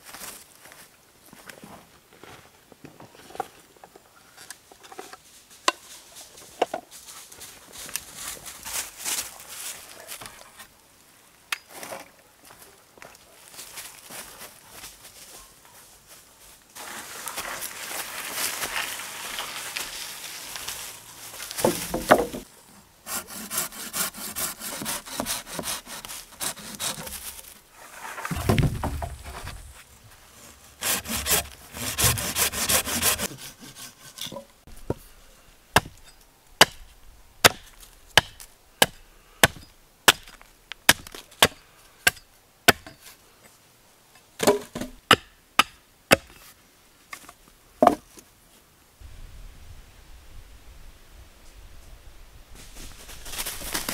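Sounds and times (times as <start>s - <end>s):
sharp wooden knocks: 21.6s - 22.5s, 28.3s - 29.6s
hand saw rasping through wood: 23.0s - 27.3s, 30.7s - 34.2s.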